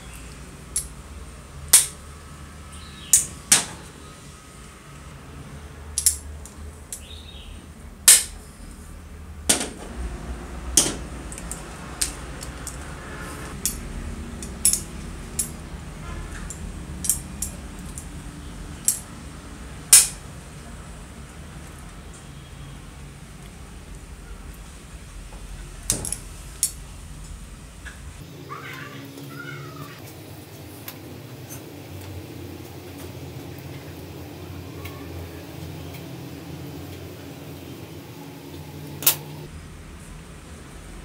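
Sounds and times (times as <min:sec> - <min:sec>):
pliers clicking on metal connectors: 0:00.7 - 0:01.0, 0:01.7 - 0:02.0, 0:06.0 - 0:07.2, 0:10.8 - 0:12.9, 0:13.5 - 0:15.7, 0:16.3 - 0:18.1, 0:18.8 - 0:19.1, 0:19.9 - 0:20.2.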